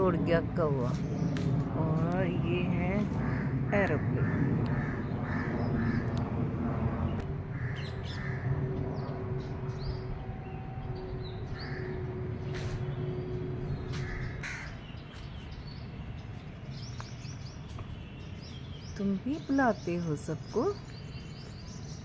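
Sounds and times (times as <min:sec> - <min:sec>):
aeroplane passing overhead: 0:00.0 - 0:22.0
crows cawing: 0:03.2 - 0:06.2, 0:07.5 - 0:08.6, 0:11.6 - 0:12.0, 0:13.9 - 0:14.8
small birds chirping: 0:07.1 - 0:22.0.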